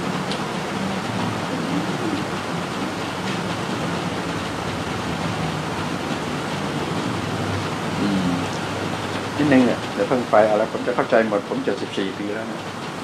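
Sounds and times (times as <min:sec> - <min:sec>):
steady rushing hiss: 0:00.0 - 0:13.0
faint voices: 0:07.9 - 0:08.8.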